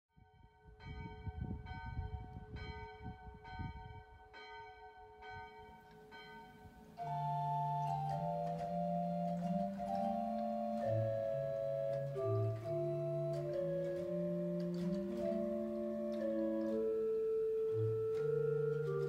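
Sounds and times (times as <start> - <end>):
church bell tolling: 0.7 - 19.0
organ playing sustained chords: 5.0 - 19.0.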